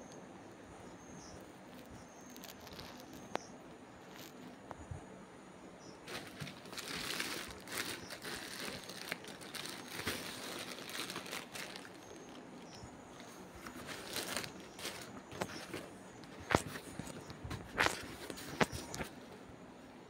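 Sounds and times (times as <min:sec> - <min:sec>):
plastic packaging crinkling: 0:02.3 - 0:03.4, 0:06.0 - 0:19.1.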